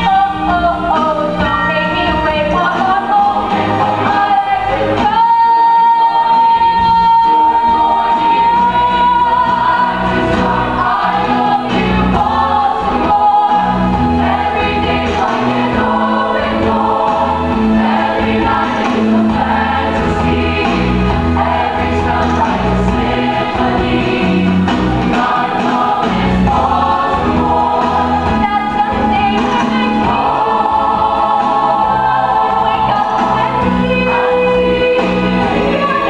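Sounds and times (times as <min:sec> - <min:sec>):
choir singing show tunes: 0:00.0 - 0:36.0.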